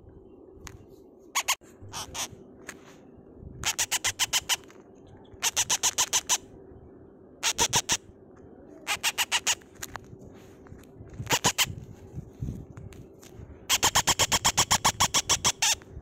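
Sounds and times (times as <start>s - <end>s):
parrot chick peeping: 1.4s - 2.3s, 3.6s - 6.4s, 7.4s - 8.0s, 8.8s - 9.6s, 11.3s - 11.8s, 13.7s - 15.8s.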